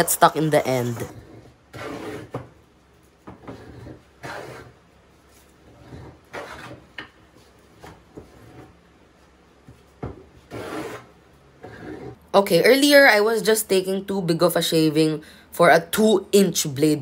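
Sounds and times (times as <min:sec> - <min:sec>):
hand plane swishing through wood: 0:01.1 - 0:02.4, 0:03.4 - 0:04.8, 0:05.6 - 0:06.9, 0:10.5 - 0:12.2.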